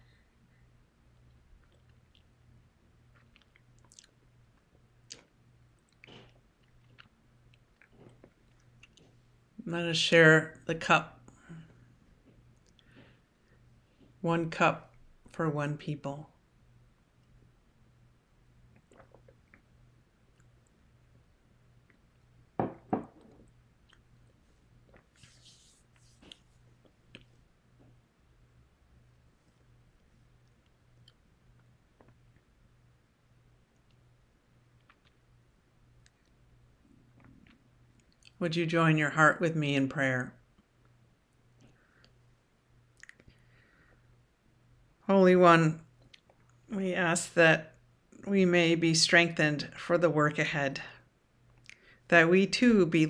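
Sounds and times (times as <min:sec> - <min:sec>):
faint electrical hum: 0:00.0 - 0:53.0
faint chewing and mouth smacks: 0:01.1 - 0:02.4, 0:03.0 - 0:09.3, 0:11.7 - 0:14.2, 0:18.7 - 0:20.9, 0:21.8 - 0:22.2, 0:23.3 - 0:28.0, 0:29.4 - 0:32.6, 0:33.7 - 0:38.4, 0:42.9 - 0:43.5, 0:46.0 - 0:46.7, 0:51.4 - 0:52.0.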